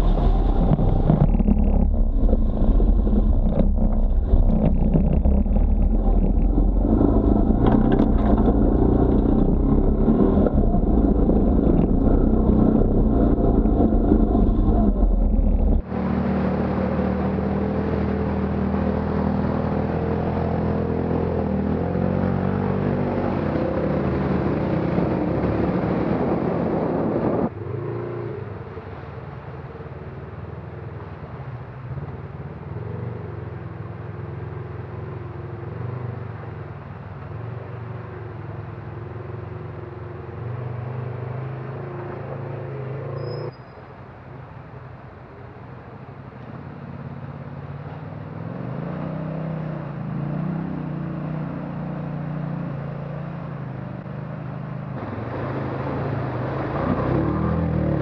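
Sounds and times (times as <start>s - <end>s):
loud engine revving: 0.0s - 27.5s
vehicle engine at low revs: 0.0s - 58.0s.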